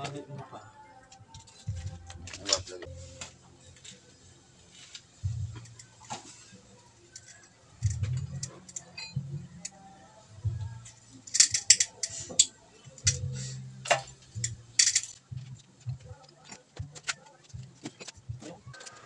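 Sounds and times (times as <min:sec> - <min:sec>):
metallic clinks of hand tools: 0:11.3 - 0:15.2.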